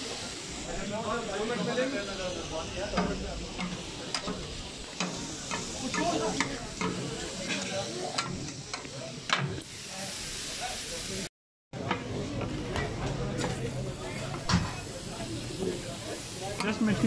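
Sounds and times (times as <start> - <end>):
chicken sizzling on a griddle: 0.0 - 17.0
metal spatulas scraping and clinking: 3.0 - 8.8.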